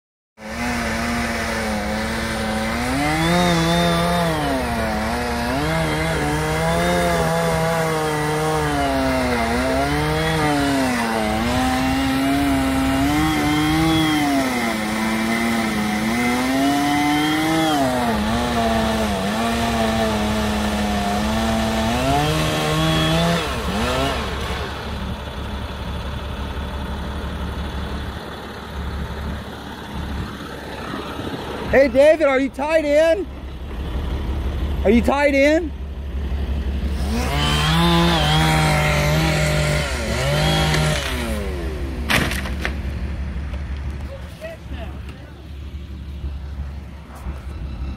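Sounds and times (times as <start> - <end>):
chainsaw revving in wood: 0.4 - 25.0, 36.8 - 42.8
truck engine idling: 23.6 - 47.9.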